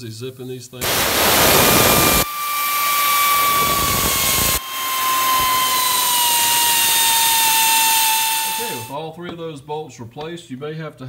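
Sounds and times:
air ratchet whining: 0.8s - 8.9s.

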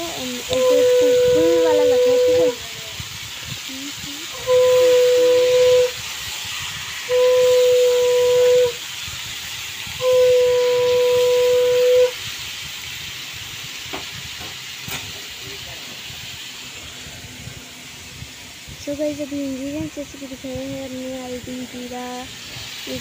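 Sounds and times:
meat sizzling in oil: 0.0s - 23.0s
whistle-like tones: 0.5s - 2.6s.

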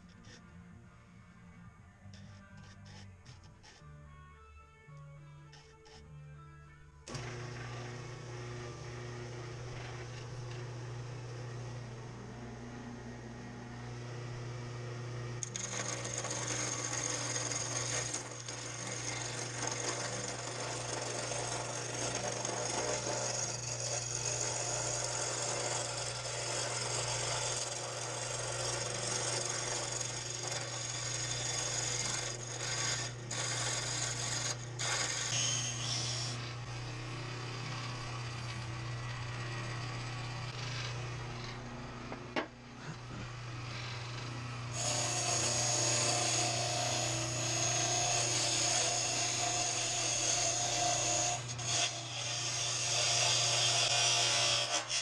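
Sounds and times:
wood lathe motor hum: 7.1s - 55.0s
turning tool scraping wood: 15.4s - 55.0s.

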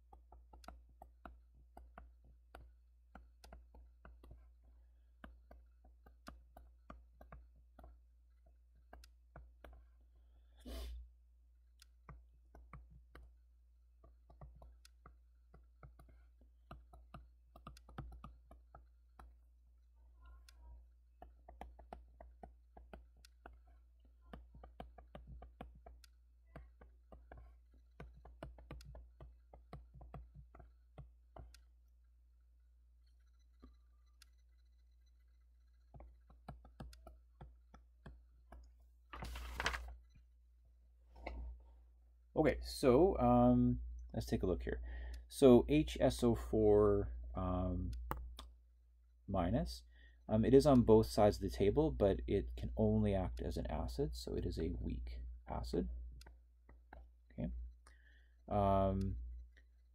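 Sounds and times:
stylus tapping tablet screen: 0.0s - 40.4s, 47.8s - 48.6s, 53.1s - 59.9s.

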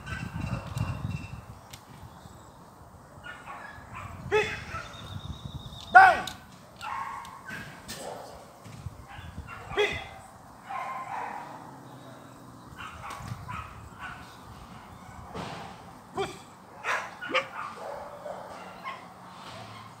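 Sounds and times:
dog barking: 3.2s - 5.0s, 6.8s - 15.4s, 16.1s - 20.0s.

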